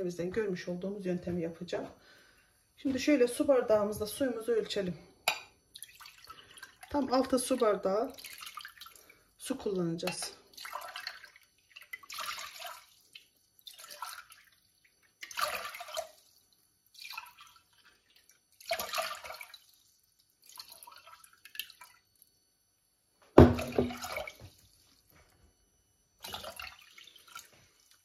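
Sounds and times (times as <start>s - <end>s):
water pouring and splashing: 5.7s - 9.2s, 10.0s - 22.2s, 23.4s - 25.3s, 26.2s - 28.0s.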